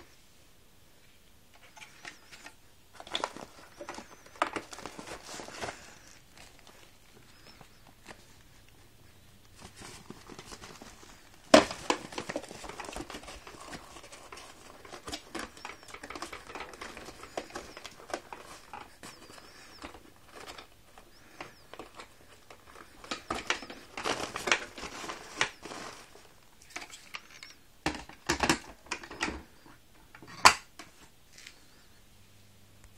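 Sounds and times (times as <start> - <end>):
plastic cover clicking and knocking: 1.6 - 5.5, 11.5 - 25.8, 26.7 - 29.4
paper dust bag rustling: 1.6 - 27.5.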